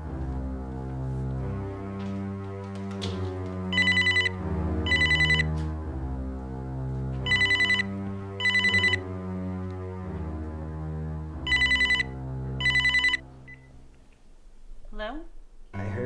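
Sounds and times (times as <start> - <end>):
low background music: 0.0 - 16.0
electronic telephone ringing: 3.7 - 5.5, 7.3 - 9.0, 11.5 - 13.7.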